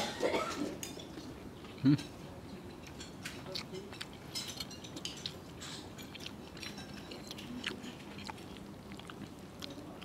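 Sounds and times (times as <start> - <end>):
cutlery clicking on a plate: 2.0 - 8.3
person chewing: 2.8 - 10.0.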